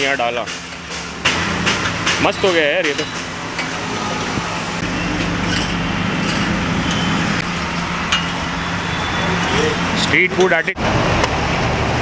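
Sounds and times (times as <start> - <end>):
constant low hum: 0.0 - 9.0.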